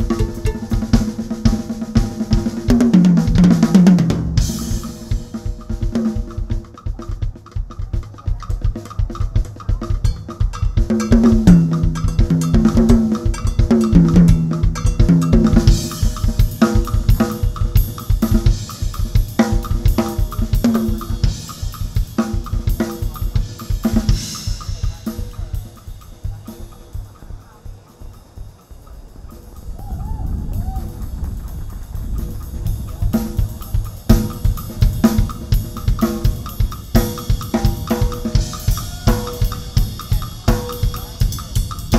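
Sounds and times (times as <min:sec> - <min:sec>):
fast drum kit solo: 0:00.0 - 0:41.9
cymbal crashes: 0:04.2 - 0:05.9.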